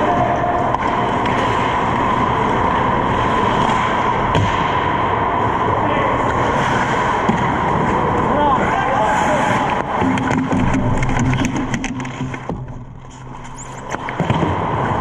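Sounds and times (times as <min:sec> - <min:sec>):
skates rushing on ice: 0:00.0 - 0:15.0
stick hitting puck: 0:09.6 - 0:12.8, 0:13.9 - 0:14.7.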